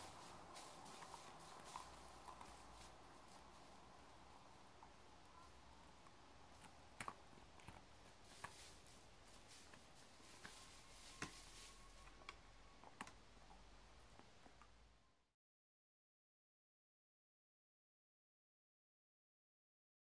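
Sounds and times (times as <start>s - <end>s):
soft scrapes in sand: 0.0s - 3.6s, 8.2s - 12.0s.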